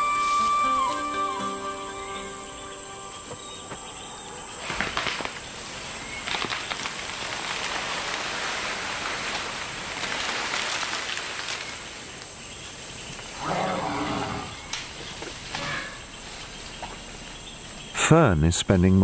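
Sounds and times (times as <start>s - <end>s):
high insect drone: 0.0s - 18.9s
rustling: 4.5s - 13.8s.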